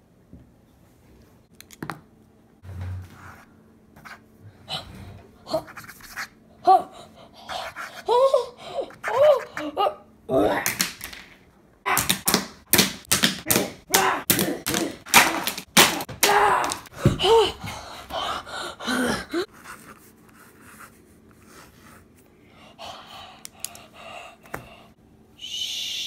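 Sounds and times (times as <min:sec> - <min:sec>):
person groaning and gasping: 0:15.8 - 0:19.5.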